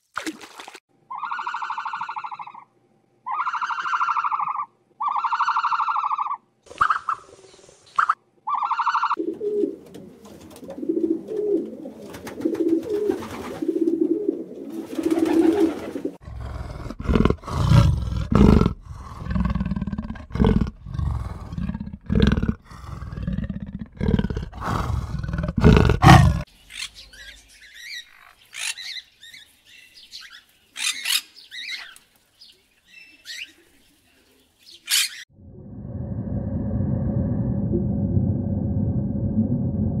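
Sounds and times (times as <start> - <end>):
macaws squawking and chirping: 1.1 - 2.7, 3.3 - 7.4, 8.0 - 9.2, 26.0 - 29.4, 30.1 - 32.0, 34.7 - 35.2
low rhythmic animal calls: 1.1 - 7.2
deep roaring calls: 16.2 - 26.5.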